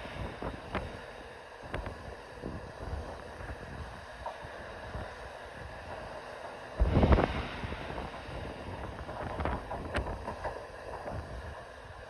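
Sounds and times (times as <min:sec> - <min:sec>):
freight train rumbling past: 0:00.0 - 0:12.0
wind buffeting microphone: 0:00.0 - 0:12.0
train wheels clacking: 0:05.8 - 0:11.8.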